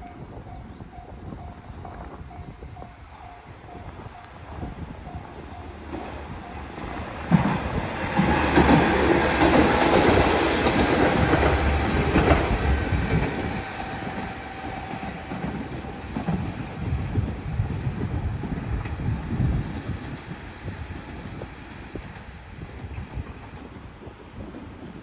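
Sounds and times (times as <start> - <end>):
diesel railcar passing: 0.0 - 25.0
wheels clacking over rail joints: 5.6 - 16.6.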